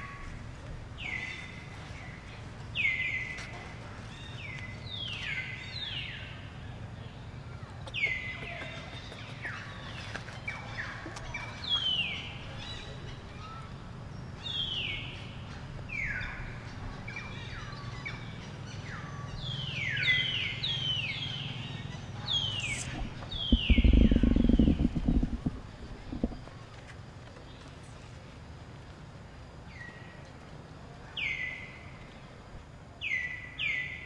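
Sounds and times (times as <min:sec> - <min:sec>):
birds whistling: 0:22.3 - 0:26.5
low rumble: 0:22.4 - 0:26.7.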